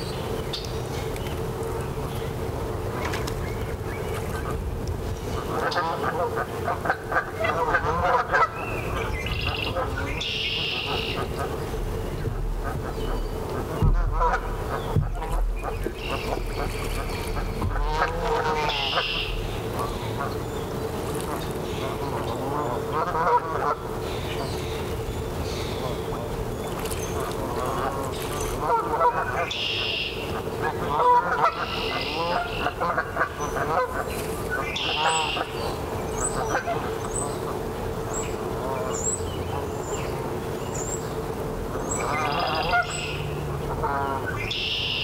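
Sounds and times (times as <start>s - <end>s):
birds singing: 0.0s - 45.0s
geese honking: 5.3s - 20.5s, 21.2s - 24.7s, 27.0s - 39.7s, 41.7s - 45.0s.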